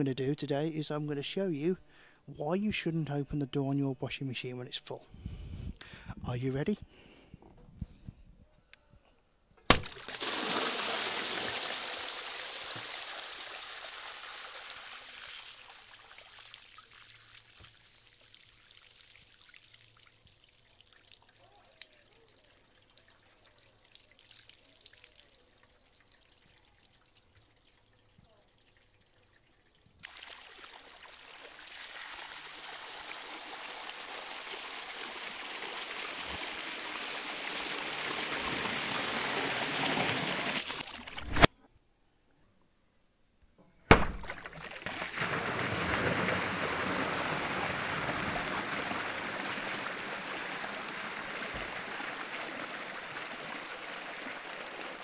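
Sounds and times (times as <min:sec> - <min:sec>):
water trickling and dripping: 0:09.8 - 0:41.1
water gushing onto stone steps: 0:09.8 - 0:41.2, 0:44.3 - 0:55.0.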